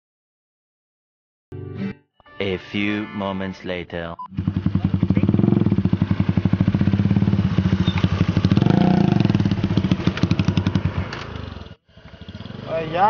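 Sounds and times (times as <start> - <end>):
motorcycle engines passing: 4.3 - 13.0.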